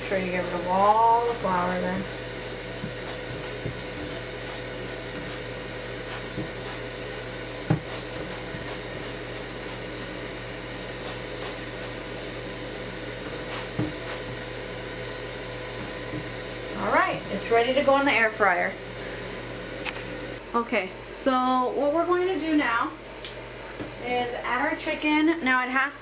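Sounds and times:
steady background hum: 0.0 - 26.0
oil mister hissing spurts: 1.2 - 10.1, 11.0 - 12.6, 13.4 - 14.4.

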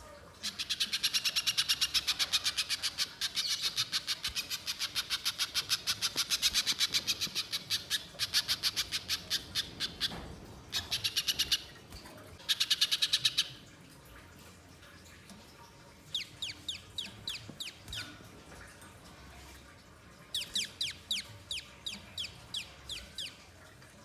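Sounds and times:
bird rapid chatter: 10.7 - 11.8.

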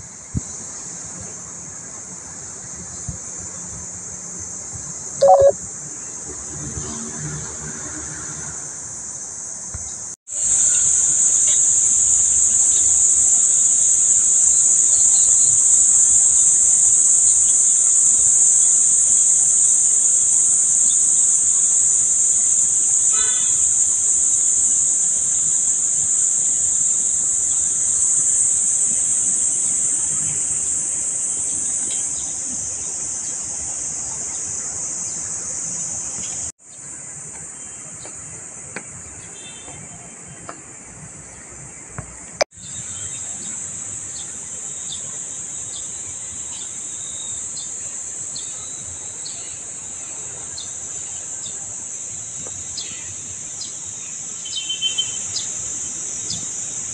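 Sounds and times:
high-pitched insect drone: 5.2 - 5.6, 10.3 - 37.8, 42.6 - 56.9.

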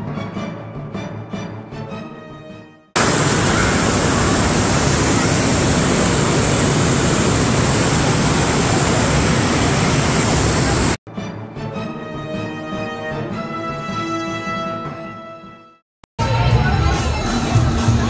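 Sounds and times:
swirling water rushing: 3.0 - 11.0.

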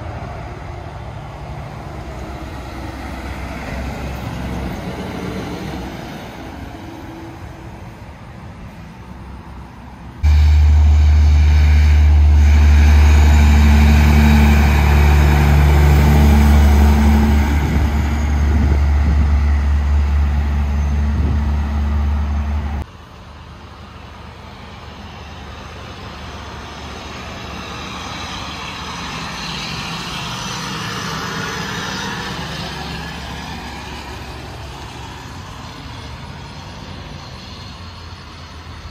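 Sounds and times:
dump truck passing: 0.0 - 9.6, 10.2 - 38.9
truck engine low rumble: 7.8 - 38.9.

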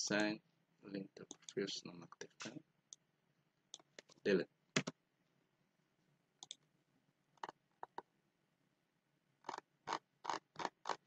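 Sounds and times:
computer mouse clicking: 6.4 - 6.6, 9.4 - 11.0.

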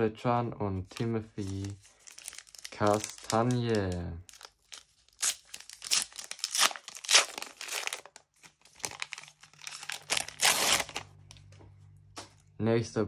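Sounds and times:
foil wrapper tearing and crinkling: 0.9 - 11.1.

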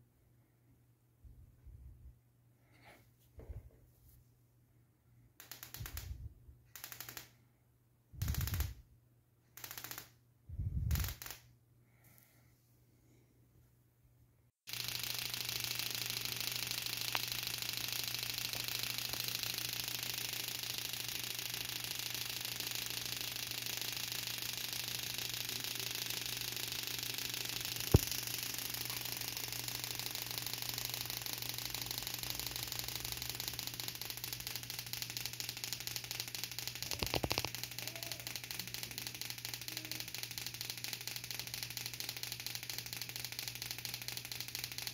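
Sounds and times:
spark plugs snapping: 14.7 - 44.9
sharp click: 18.4 - 29.7.

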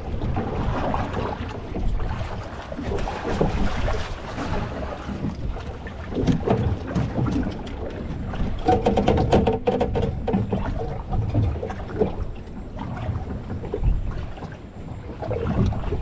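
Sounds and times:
boat rocking in choppy water: 0.0 - 16.0
clicks and knocks: 8.6 - 10.7.

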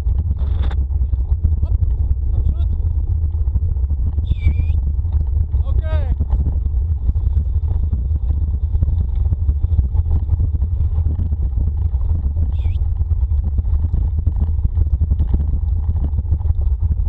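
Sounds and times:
wheels rattling over dirt trail: 0.0 - 17.0
wind buffeting microphone: 0.0 - 17.0.

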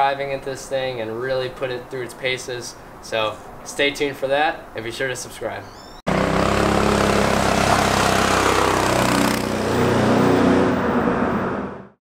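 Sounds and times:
wind and road noise: 0.0 - 12.0
go-kart engine running: 6.1 - 10.6.

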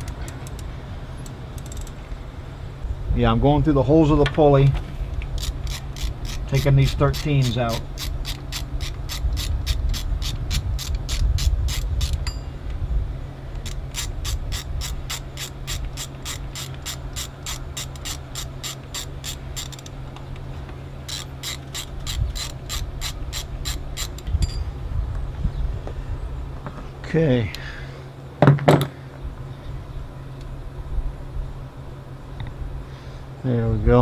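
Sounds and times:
socket ratchet clicking: 0.0 - 2.0, 5.2 - 12.4, 13.6 - 20.4, 21.0 - 24.6.

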